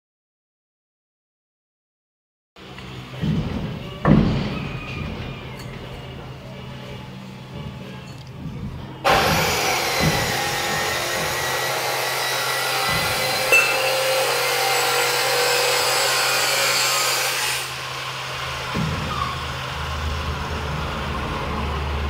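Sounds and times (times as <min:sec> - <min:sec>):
power tool running: 0:09.0 - 0:20.8.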